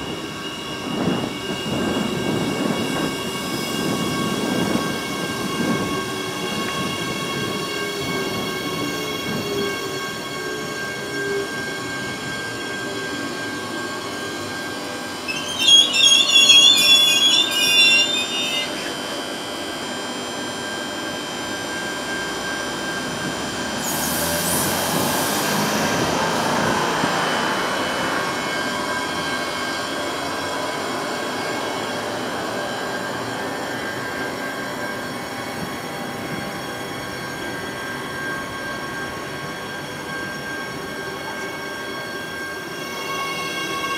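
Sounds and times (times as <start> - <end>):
high-pitched wheel squeal: 0.0 - 19.3, 37.0 - 43.9
electric train passing: 0.0 - 43.9.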